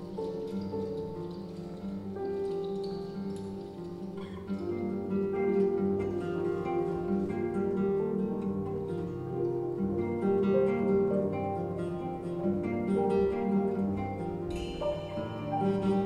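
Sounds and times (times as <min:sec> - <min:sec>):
improvised instrumental music: 0:03.5 - 0:16.0.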